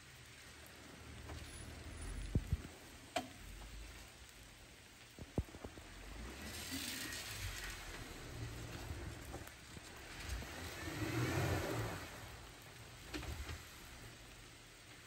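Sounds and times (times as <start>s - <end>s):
hiss: 0.0s - 15.0s
sharp clicks and knocks: 2.4s - 3.4s.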